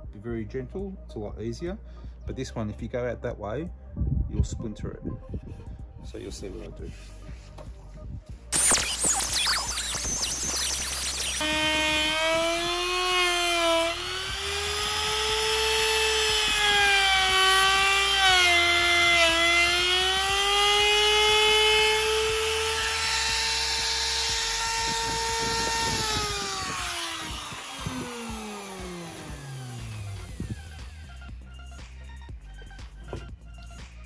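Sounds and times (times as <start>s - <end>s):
router whining cutting wood: 8.6s - 31.1s.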